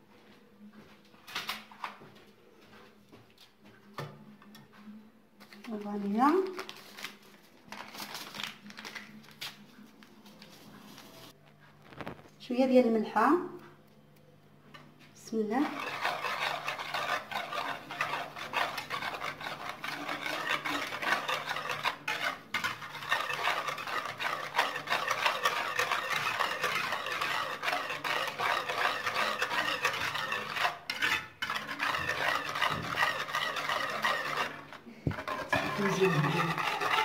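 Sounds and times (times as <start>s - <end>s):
whisk beating in a bowl: 15.4s - 37.0s.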